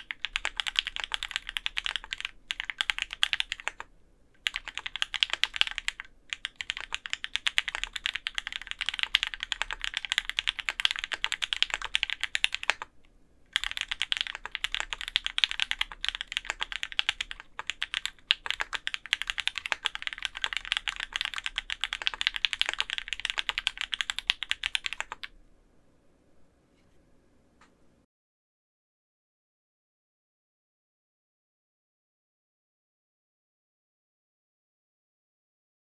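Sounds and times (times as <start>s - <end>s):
mechanical keyboard typing: 0.0s - 12.9s, 13.5s - 25.3s.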